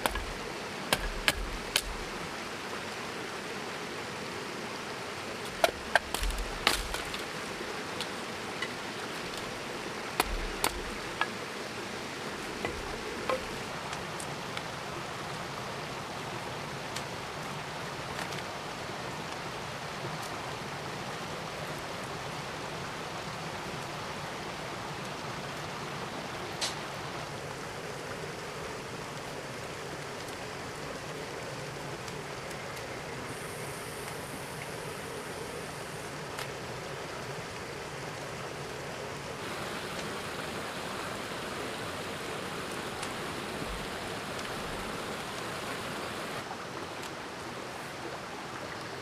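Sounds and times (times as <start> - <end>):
sharp knocks and clicks: 0.0 - 2.1, 10.2 - 11.3
outdoor background hiss: 0.0 - 49.0.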